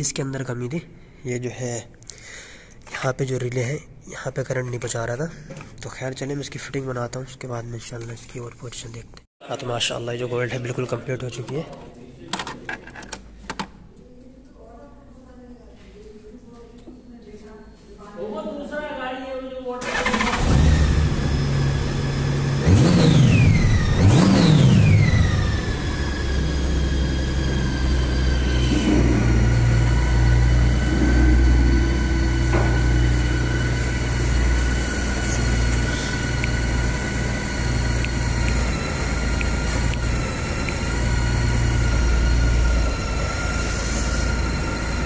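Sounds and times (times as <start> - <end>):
motorcycle engine revving and idling: 19.8 - 45.0.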